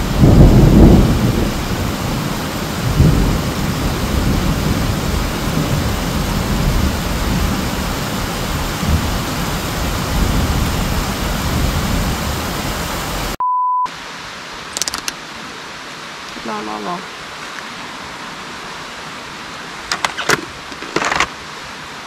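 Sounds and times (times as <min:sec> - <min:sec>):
low rumble of thunder: 0:00.0 - 0:12.8
heavy rain pouring: 0:00.0 - 0:22.0
high beep: 0:13.4 - 0:13.9.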